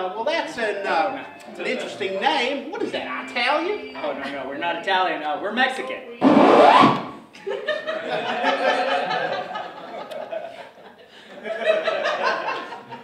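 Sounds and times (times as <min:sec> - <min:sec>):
audience laughing: 0:07.3 - 0:13.0.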